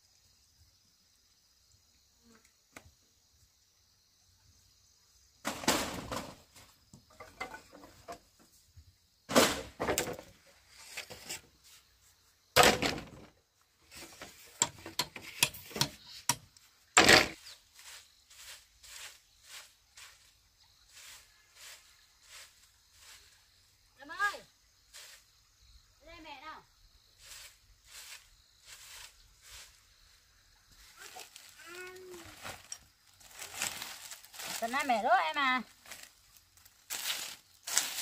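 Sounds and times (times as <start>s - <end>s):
faint insect hiss: 0.0s - 38.0s
bamboo poles clattering: 5.4s - 8.6s, 9.3s - 11.5s, 12.6s - 17.5s, 36.9s - 38.0s.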